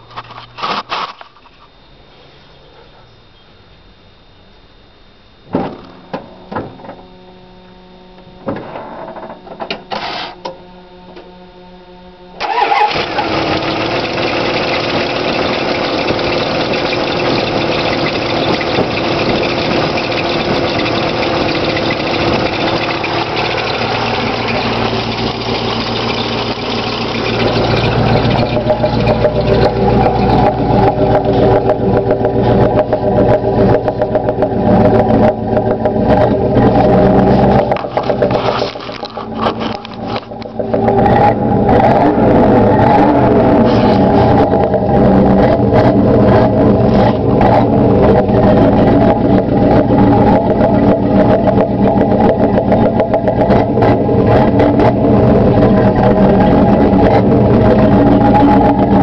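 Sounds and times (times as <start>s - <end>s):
pickup engine starting and idling: 12.4s - 59.0s.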